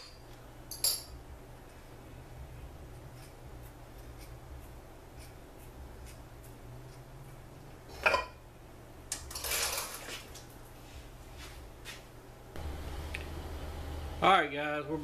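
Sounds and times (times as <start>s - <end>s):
metal parts scraping and rattling: 9.3s - 10.4s.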